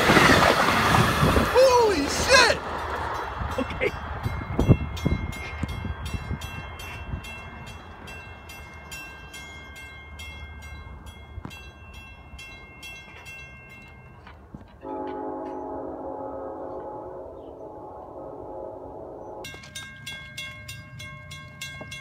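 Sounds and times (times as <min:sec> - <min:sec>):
low rumble of train: 0:00.0 - 0:22.0
crossing warning bell ringing: 0:01.6 - 0:22.0
train horn chord: 0:14.8 - 0:19.8.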